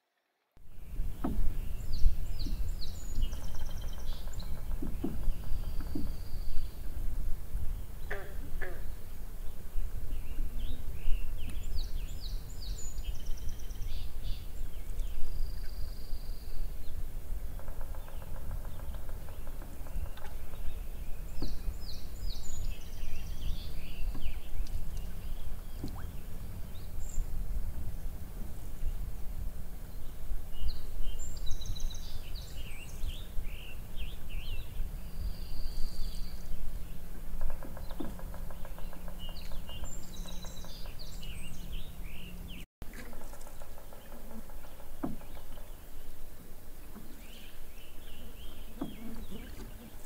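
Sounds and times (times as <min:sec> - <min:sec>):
low microphone rumble: 0:00.6 - 0:42.6
songbirds chirping and trilling: 0:00.6 - 0:50.0
canoe paddle splashes: 0:17.2 - 0:29.8, 0:42.8 - 0:50.0.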